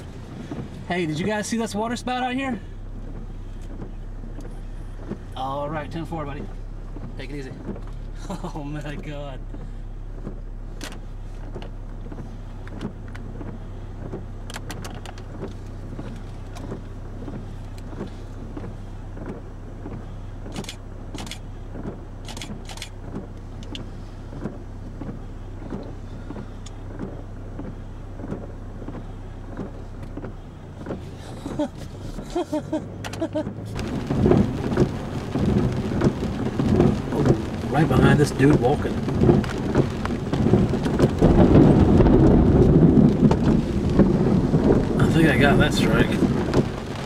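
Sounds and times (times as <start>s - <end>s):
car interior hum: 0.0s - 47.0s
heavy rain on a car: 0.0s - 47.0s
faint ticks: 9.5s - 31.0s.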